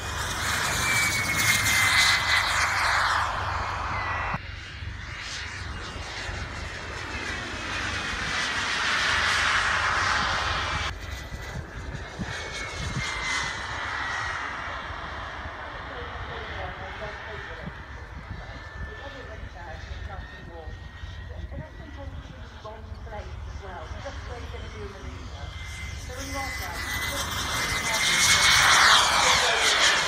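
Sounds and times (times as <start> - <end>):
model aircraft engine whine passing: 0.0 - 30.0.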